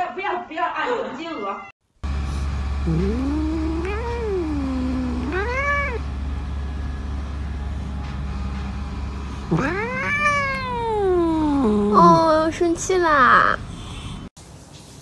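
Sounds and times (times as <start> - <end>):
cat meowing: 2.9 - 6.0, 9.5 - 11.9.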